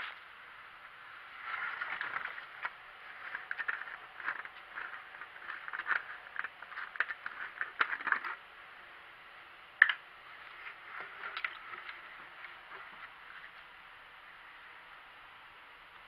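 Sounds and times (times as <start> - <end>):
plastic jug crackles and clicks: 1.7 - 8.4, 9.8 - 10.0, 10.7 - 13.1.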